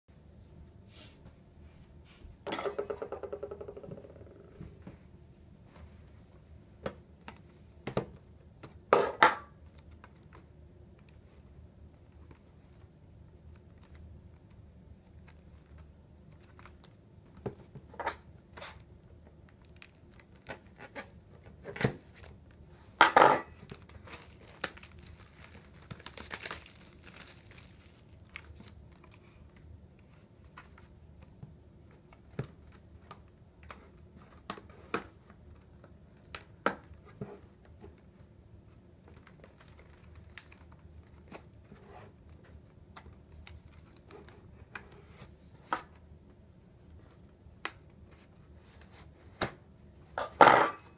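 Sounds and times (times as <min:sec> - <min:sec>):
plastic wrapping tearing and crinkling: 0:19.5 - 0:22.4, 0:23.6 - 0:29.1.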